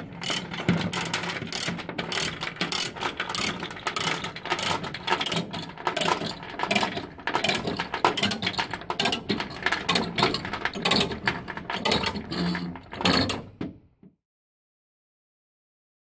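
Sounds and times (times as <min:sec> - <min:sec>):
ratchet pawl clicking: 0:00.2 - 0:08.4.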